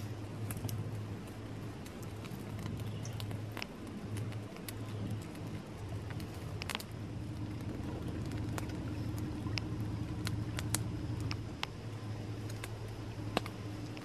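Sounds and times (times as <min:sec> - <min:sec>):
steady low hum: 0:00.0 - 0:14.0
wood fire crackling and popping: 0:00.0 - 0:14.0.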